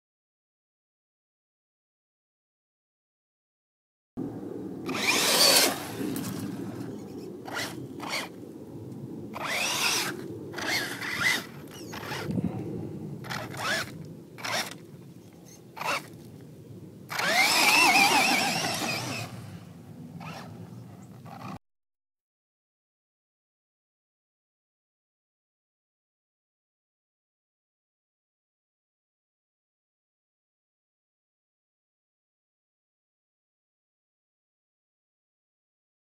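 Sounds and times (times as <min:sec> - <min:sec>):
electric motor whining: 0:04.8 - 0:08.4, 0:09.3 - 0:12.4, 0:13.2 - 0:14.8, 0:15.8 - 0:16.2, 0:17.1 - 0:19.6, 0:20.2 - 0:21.6
tyres spinning in sand: 0:17.1 - 0:19.6.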